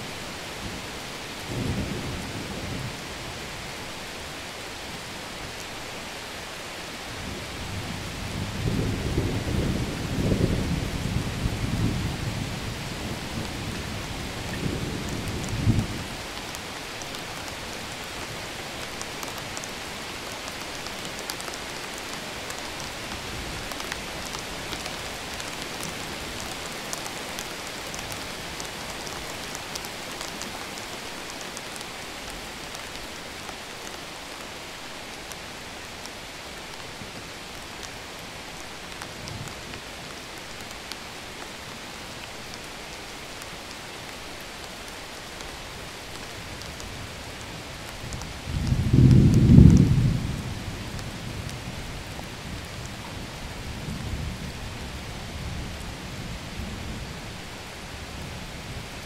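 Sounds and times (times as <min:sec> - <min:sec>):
steady rain falling: 0:00.0 - 0:59.0
thunder rumbling: 0:48.5 - 0:51.5.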